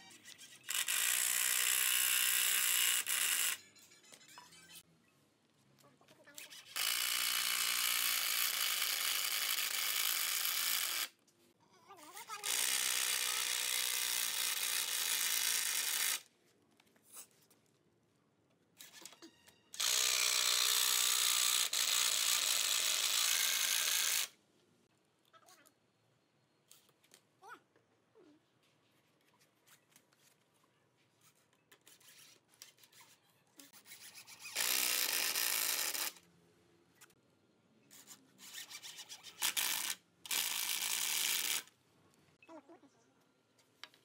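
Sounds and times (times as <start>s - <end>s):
impact driver driving screws: 34.4s - 36.2s.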